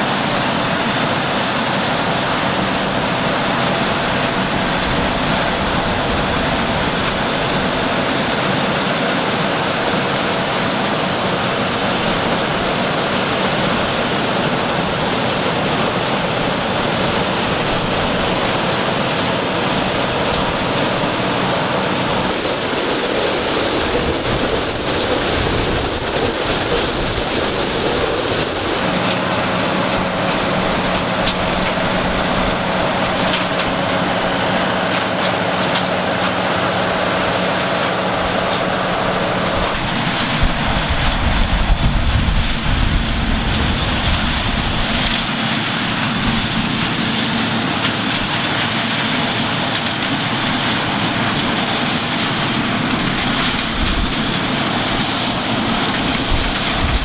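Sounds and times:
combine harvester running: 0:00.0 - 0:57.0.

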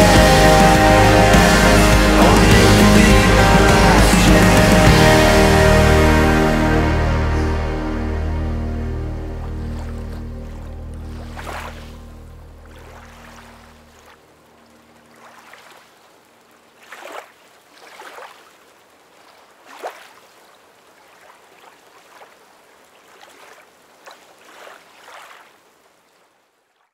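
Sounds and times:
music: 0:00.0 - 0:13.7
small waves lapping at shore: 0:09.6 - 0:26.9.

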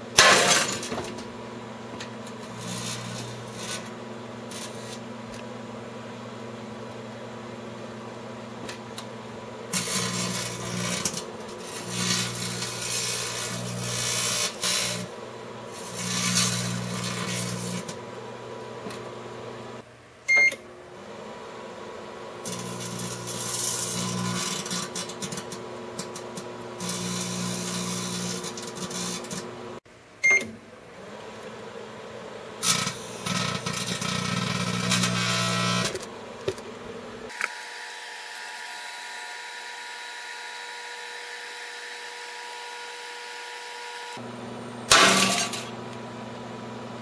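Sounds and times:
microwave oven humming: 0:00.9 - 0:37.7, 0:44.2 - 0:47.0
plasma crackling and buzzing: 0:02.3 - 0:03.9, 0:09.7 - 0:15.1, 0:15.7 - 0:18.0
short beep: 0:30.2 - 0:30.5.

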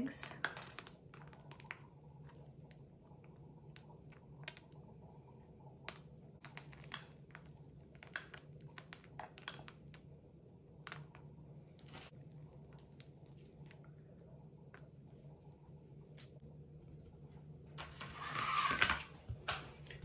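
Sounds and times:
candy pieces clicking together: 0:00.1 - 0:01.8, 0:08.0 - 0:10.1.

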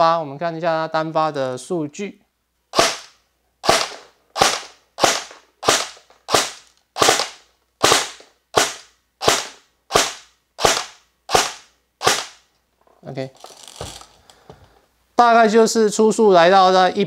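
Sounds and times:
airsoft rifle shots: 0:02.7 - 0:12.5.

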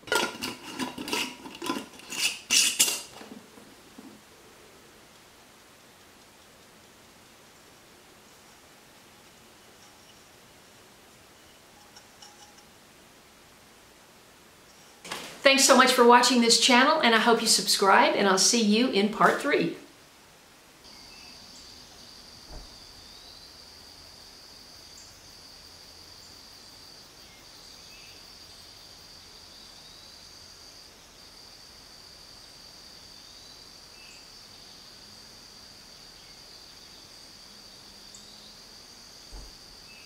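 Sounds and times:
insects droning: 0:00.0 - 0:40.0
soft thump: 0:22.5 - 0:22.8.

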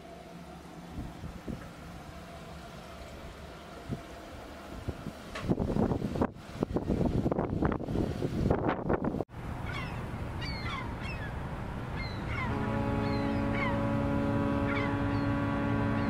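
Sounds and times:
wind buffeting microphone: 0:04.8 - 0:10.6
deep horn blast: 0:12.3 - 0:16.0.

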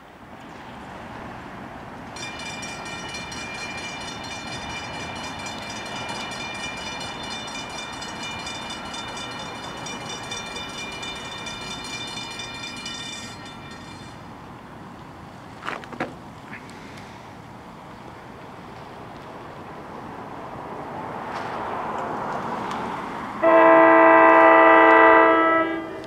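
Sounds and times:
low rumble of approaching train: 0:00.0 - 0:26.0
railroad crossing bell ringing: 0:02.1 - 0:14.7, 0:23.4 - 0:26.0.

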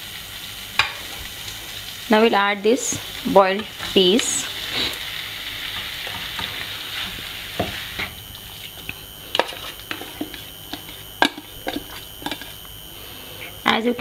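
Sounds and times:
masala sizzling in frying pan: 0:00.0 - 0:14.0
spatula and bowl clicking on pan: 0:08.8 - 0:12.6.

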